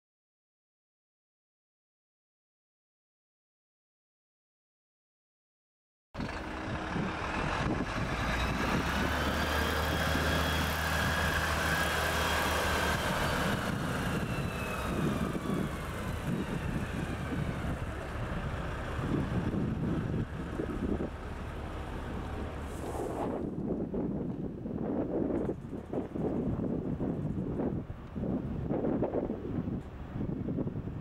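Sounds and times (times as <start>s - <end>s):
truck diesel engine running: 6.2s - 23.0s.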